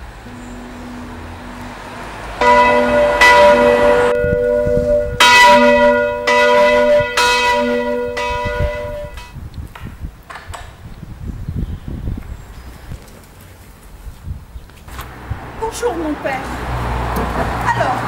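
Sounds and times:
church bells ringing: 0.0 - 9.4.

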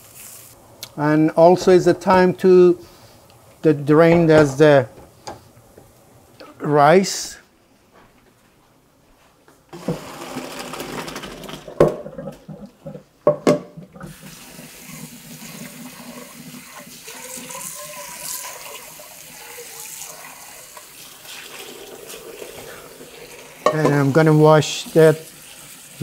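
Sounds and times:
water pouring into metal colander: 14.1 - 26.0.

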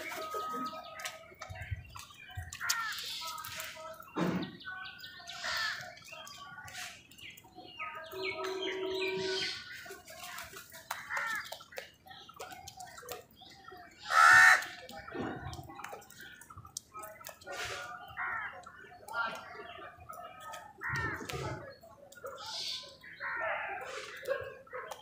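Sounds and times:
crows cawing: 5.4 - 5.9, 14.1 - 14.8.

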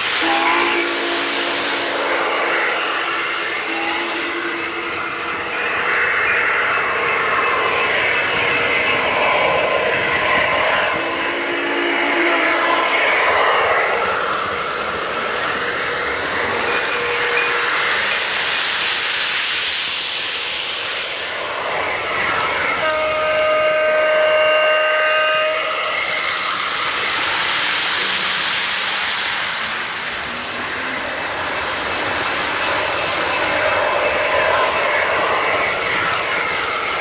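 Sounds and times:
model trains rolling clatter: 0.0 - 24.5, 25.5 - 37.0
multi-note train horn: 0.2 - 5.6, 10.4 - 13.5, 22.7 - 26.1.

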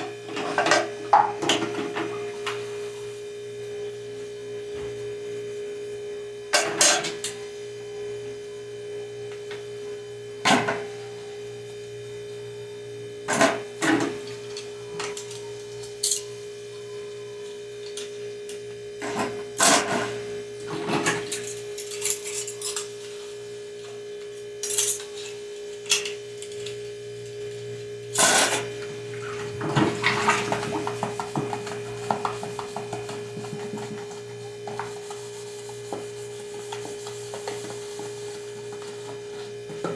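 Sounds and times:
steady hum: 0.0 - 39.9.

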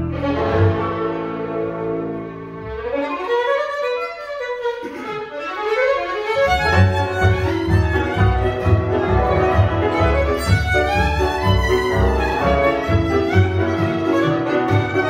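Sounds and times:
double bass: 0.0 - 2.9, 6.4 - 15.0
viola: 0.0 - 15.0
violins: 0.0 - 15.0.

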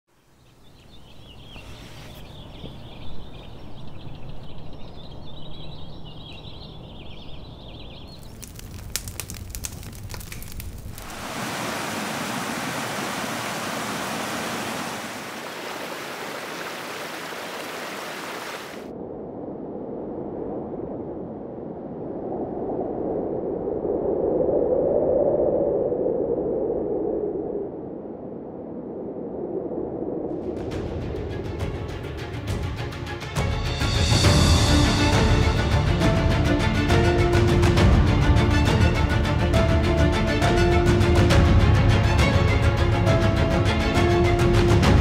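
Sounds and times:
stream rushing over rocks: 10.0 - 18.9.

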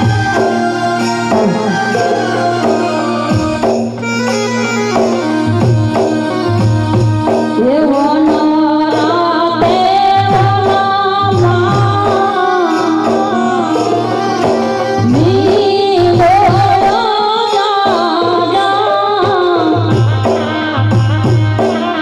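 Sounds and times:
drum beat: 0.0 - 7.6, 14.0 - 17.2
instrumental drone: 0.0 - 7.8, 11.2 - 17.0
woman singing folk song: 7.5 - 14.4, 15.0 - 21.0.

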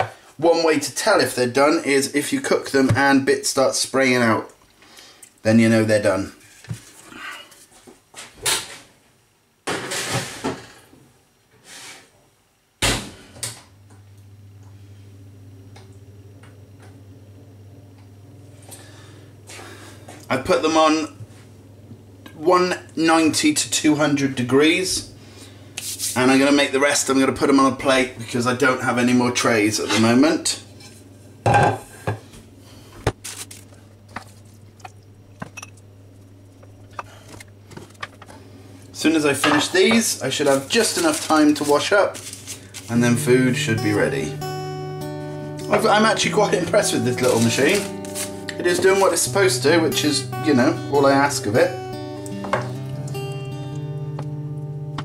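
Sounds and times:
steady low hum: 12.4 - 55.0
plate clattering on worktop: 31.5 - 32.2.

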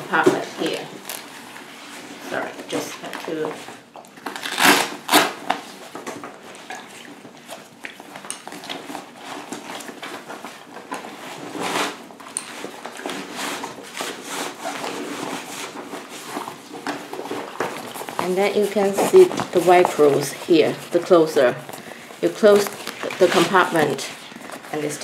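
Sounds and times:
nylon fabric and plastic bladder rustling: 0.0 - 25.0.

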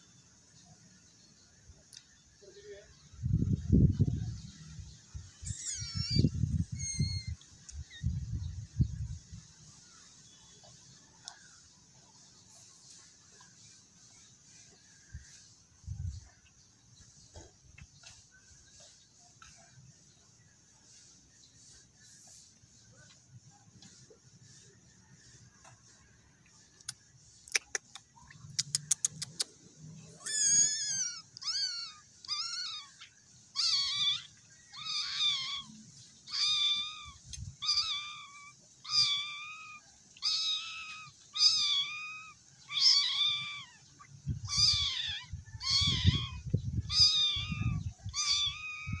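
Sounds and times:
cat meowing: 5.4 - 8.0, 30.2 - 33.0, 33.6 - 43.8, 44.4 - 49.0.

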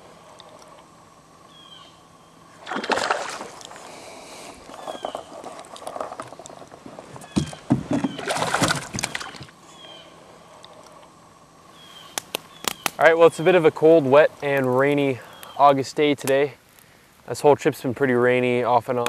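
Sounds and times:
fish splashing in water: 2.6 - 3.9, 7.9 - 9.5.

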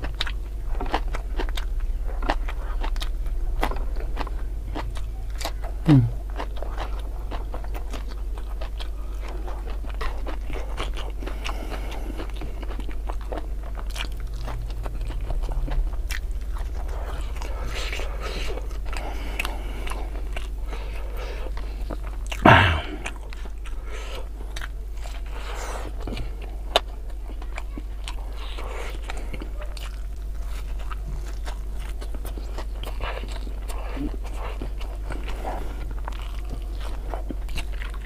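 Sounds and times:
chewing crunchy food: 0.0 - 38.0
steady low hum: 0.0 - 38.0.

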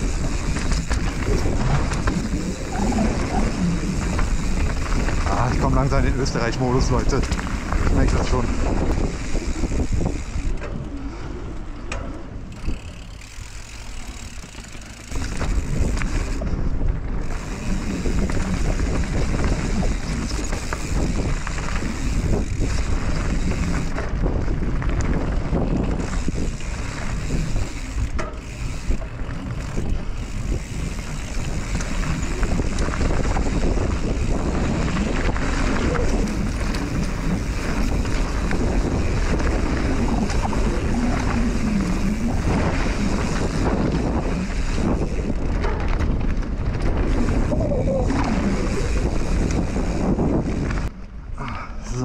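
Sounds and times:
bike knocking and rattling: 0.0 - 51.5
wind rushing over microphone: 0.0 - 52.0
tyres crunching over gravel: 17.2 - 50.9.

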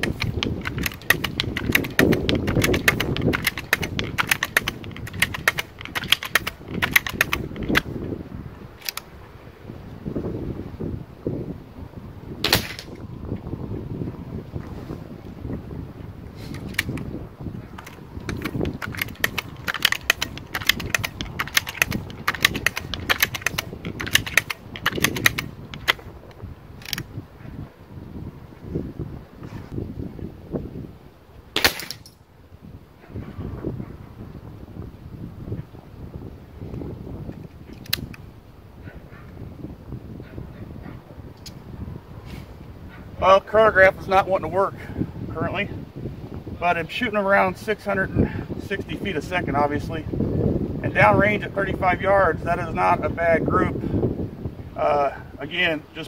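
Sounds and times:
air rifle pump clicks: 0.0 - 7.9, 8.8 - 9.1, 16.5 - 17.1, 17.8 - 26.0, 26.8 - 27.1, 37.3 - 38.2.

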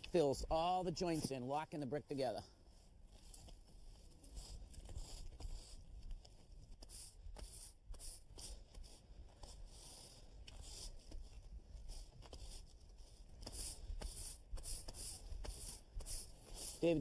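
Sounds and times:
broom bristles scratching on brick: 13.4 - 17.0.

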